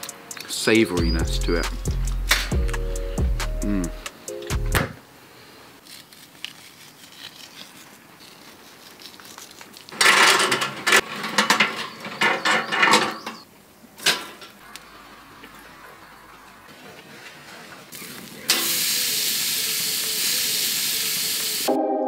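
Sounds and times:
metal clattering and clanking: 10.0 - 13.2.

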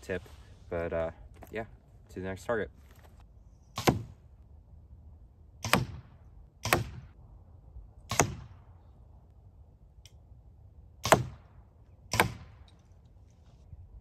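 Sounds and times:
arrows hitting target: 3.8 - 4.2.

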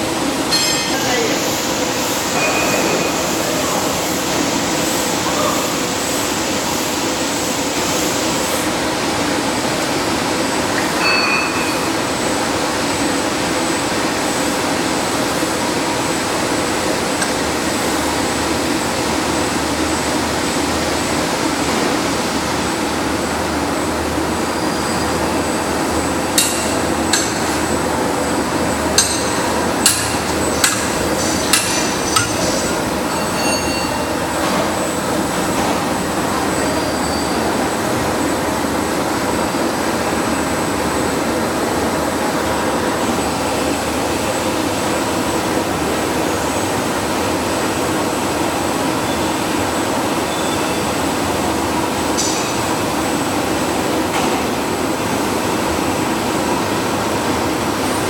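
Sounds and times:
power press mechanical hum: 24.4 - 37.1
sharp metallic strikes: 29.0 - 34.2.

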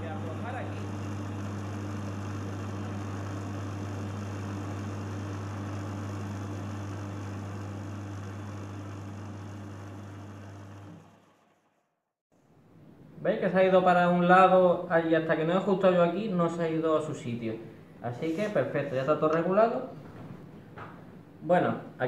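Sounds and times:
belt sander motor humming: 0.0 - 11.8.

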